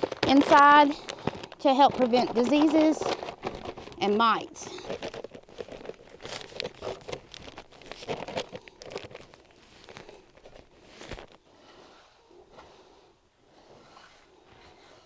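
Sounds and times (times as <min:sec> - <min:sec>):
paper sack crinkling: 0:00.0 - 0:11.4.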